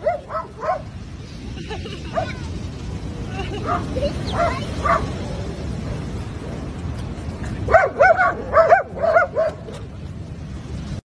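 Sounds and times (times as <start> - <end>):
dog barking and yelping: 0.0 - 0.9, 3.6 - 5.3, 7.7 - 9.8
surf rushing: 0.0 - 11.0.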